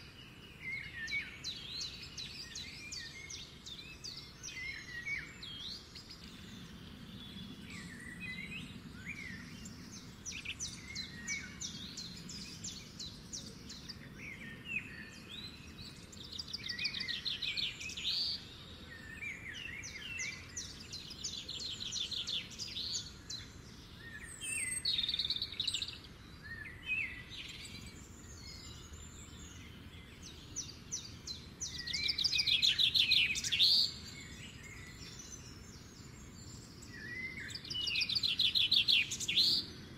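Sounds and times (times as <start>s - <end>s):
songbirds chirping: 0.0s - 39.9s.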